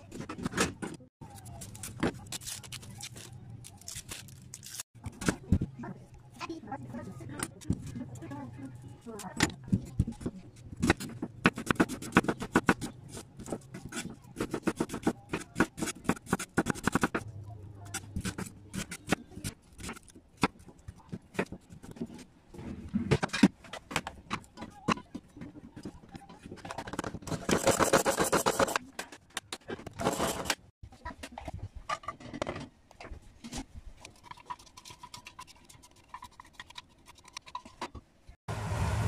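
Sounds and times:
knife chopping onion on wooden board: 9.5 - 17.3.

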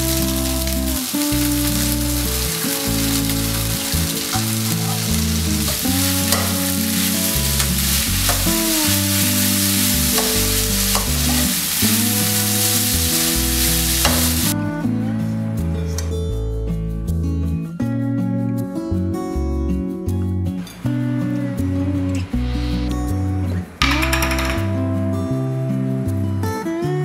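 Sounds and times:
noodles sizzling in frying pan: 0.0 - 14.6.

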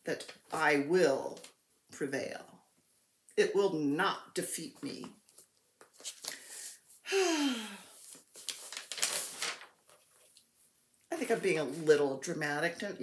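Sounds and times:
woman sighing: 6.5 - 8.0
faint rustles and clicks: 8.0 - 11.8.

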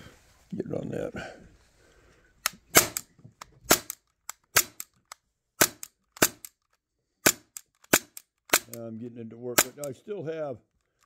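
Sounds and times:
pellet pistol action snapping: 2.4 - 8.8, 9.6 - 9.9.

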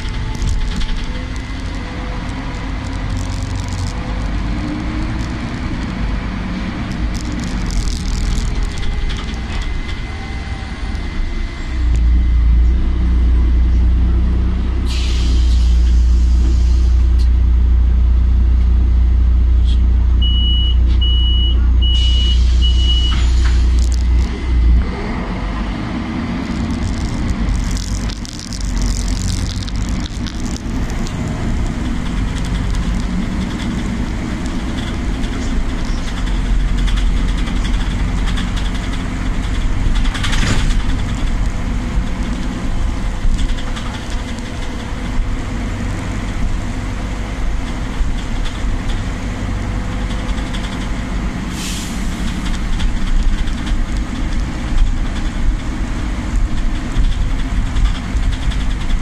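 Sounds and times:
bus engine and road rumble: 0.0 - 59.0
compressed air hisses: 51.5 - 52.2.

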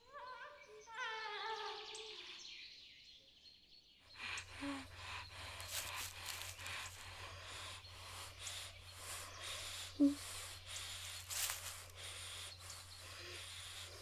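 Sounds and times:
heavy noisy breathing: 4.2 - 14.0
woman muffled whimpering: 9.9 - 10.3.

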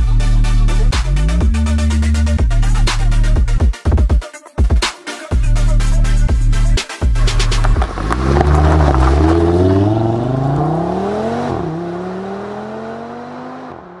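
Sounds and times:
car engine accelerating: 7.0 - 14.0.

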